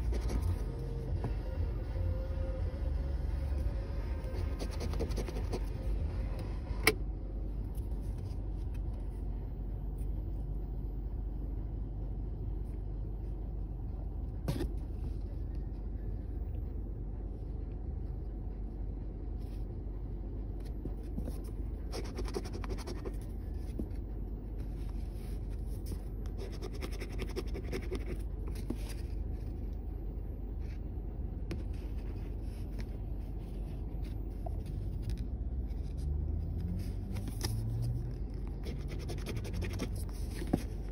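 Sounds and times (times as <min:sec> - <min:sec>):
steady low rumble: 0:00.0 - 0:40.9
coin scratching lottery ticket: 0:38.7 - 0:40.0.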